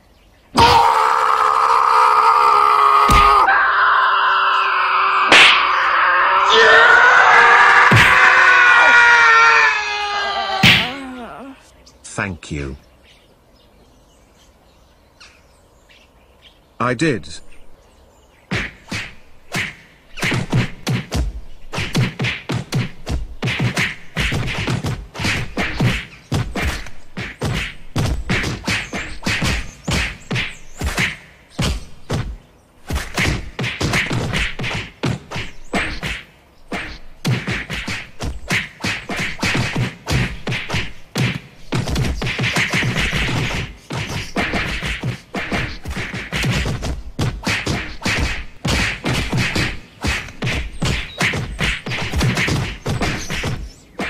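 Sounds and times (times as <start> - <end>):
cartoon punch and kick impacts: 3.1 - 3.4, 5.3 - 5.7, 7.9 - 8.2, 10.6 - 11.0, 18.5 - 53.7.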